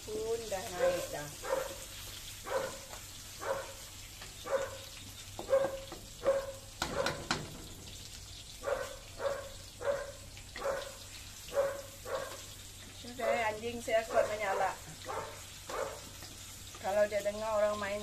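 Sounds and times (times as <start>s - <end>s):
dog barking loudly: 0.7s - 1.8s, 2.4s - 3.8s, 4.4s - 7.3s, 8.6s - 12.5s, 14.1s - 16.2s.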